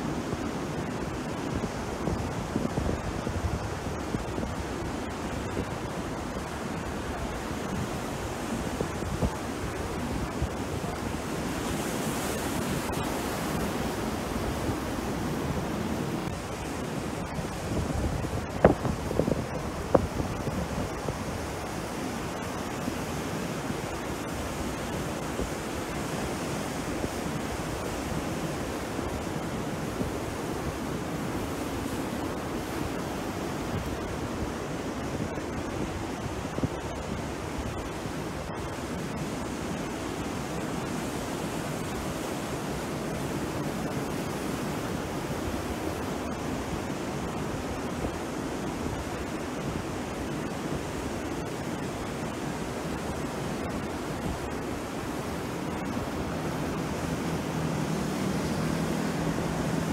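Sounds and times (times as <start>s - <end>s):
sea surf breaking ashore: 0.0s - 59.9s
wind: 0.0s - 59.9s.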